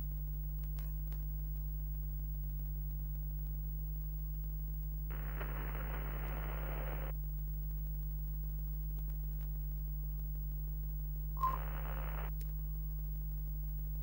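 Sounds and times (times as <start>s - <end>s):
low electrical hum: 0.0s - 14.0s
static hiss: 5.1s - 7.1s, 11.4s - 12.3s
short blip: 11.4s - 12.3s.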